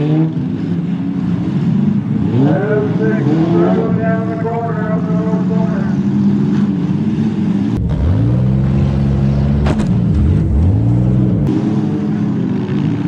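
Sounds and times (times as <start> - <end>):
car engines revving: 0.0 - 13.0
sharp crack: 9.6 - 10.4.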